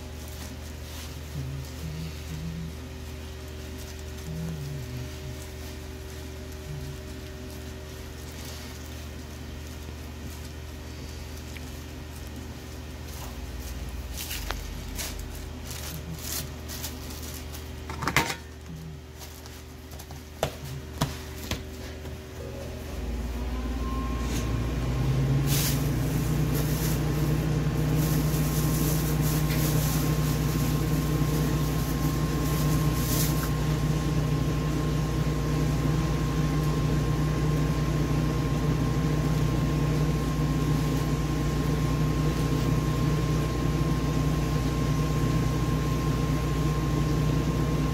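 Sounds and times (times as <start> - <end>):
appliance motor whining and humming: 20.4 - 47.9.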